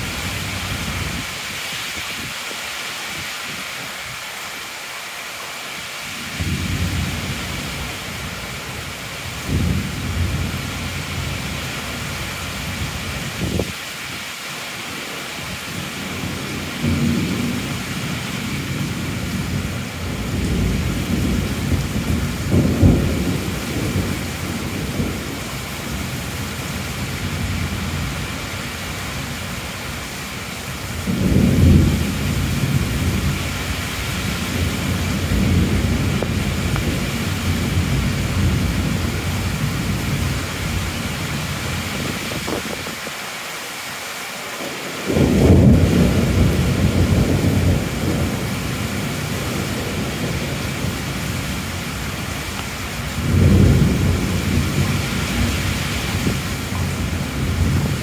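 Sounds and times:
heavy rain falling: 0:00.0 - 0:58.0
low rolling thunder: 0:06.3 - 0:13.8, 0:15.8 - 0:28.4, 0:30.8 - 0:43.0, 0:44.6 - 0:58.0.

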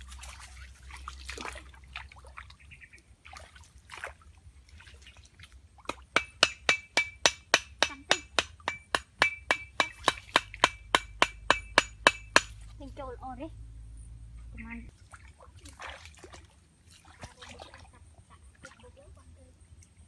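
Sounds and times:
stream water splashing: 0:00.0 - 0:06.8, 0:09.8 - 0:10.8, 0:14.9 - 0:20.0.

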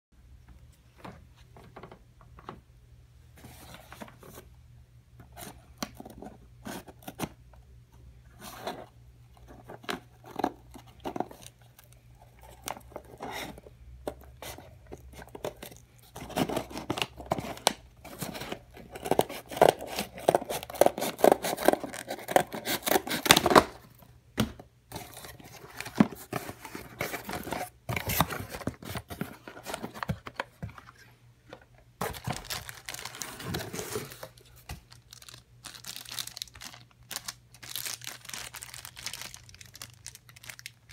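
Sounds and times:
packaging being handled: 0:09.5 - 0:23.8, 0:24.9 - 0:40.9
packing tape and cardboard tearing: 0:14.4 - 0:23.8.

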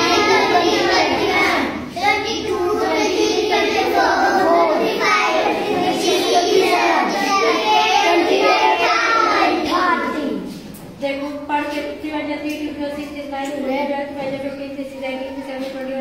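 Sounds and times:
children chanting in unison: 0:00.0 - 0:10.5.

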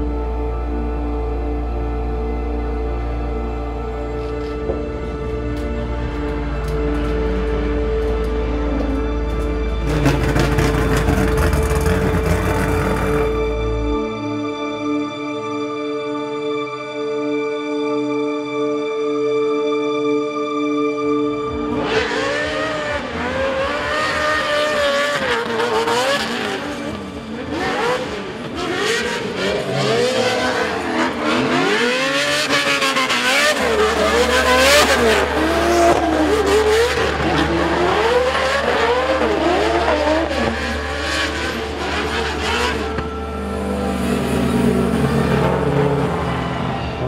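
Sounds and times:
car engine revving: 0:08.0 - 0:13.8, 0:21.7 - 0:47.0.

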